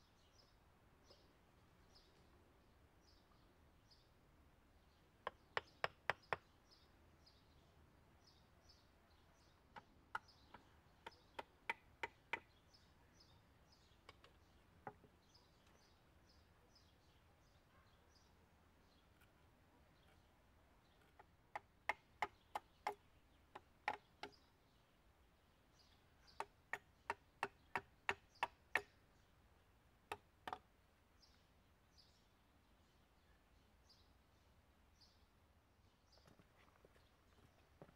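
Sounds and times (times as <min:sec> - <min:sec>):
bird chirping: 0:00.0 - 0:37.9
hatchet striking wood: 0:05.2 - 0:06.5, 0:11.0 - 0:12.5, 0:21.0 - 0:24.4, 0:26.4 - 0:28.9, 0:30.1 - 0:30.6.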